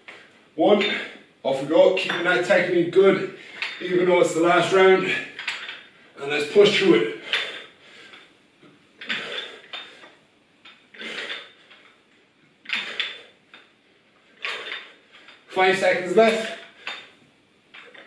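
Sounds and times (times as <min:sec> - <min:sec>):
dumbbell plates clinking: 0:00.8 - 0:01.2, 0:02.0 - 0:02.5, 0:03.5 - 0:04.1, 0:05.0 - 0:06.0, 0:06.6 - 0:08.3, 0:09.0 - 0:12.0, 0:12.6 - 0:15.5, 0:16.3 - 0:18.0.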